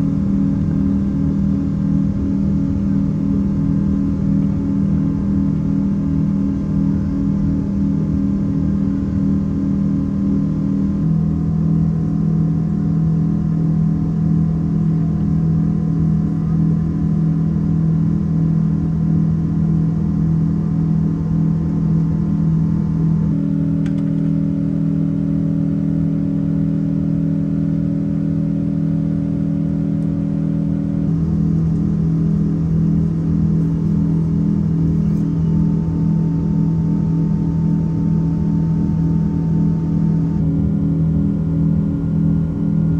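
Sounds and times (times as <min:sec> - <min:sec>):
jet engine drone in cabin: 0:00.0 - 0:42.9.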